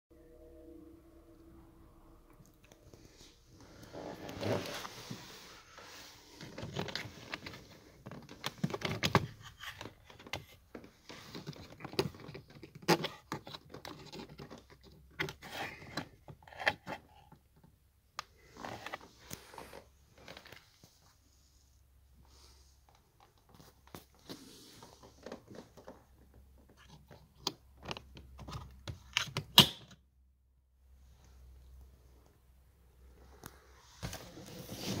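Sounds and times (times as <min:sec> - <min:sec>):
hard plastic rustles and clicks: 0:06.3 - 0:20.9.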